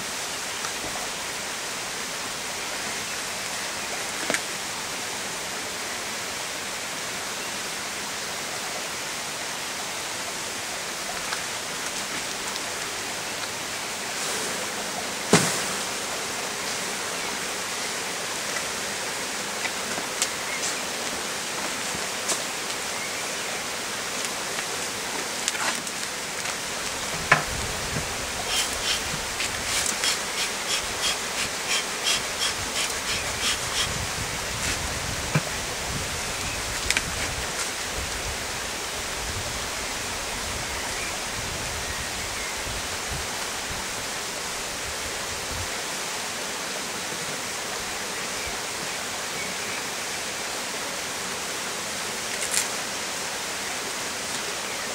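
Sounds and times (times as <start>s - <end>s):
honeybees humming: 11.5s - 36.3s.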